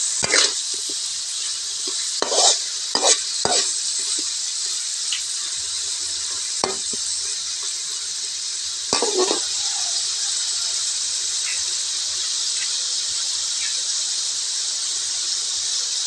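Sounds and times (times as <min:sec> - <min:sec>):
metal spatula scraping wok: 0:00.0 - 0:09.7
shrimp sizzling in hot oil: 0:00.0 - 0:16.0.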